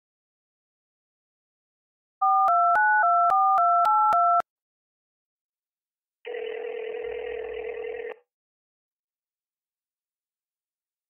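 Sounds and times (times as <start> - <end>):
telephone ringback tone: 2.2 - 4.4, 6.3 - 8.3.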